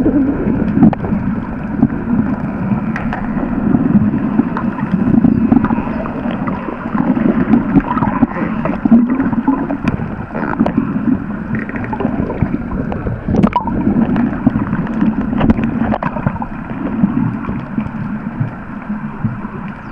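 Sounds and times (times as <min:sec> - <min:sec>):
underwater rushing water: 0:00.0 - 0:19.9.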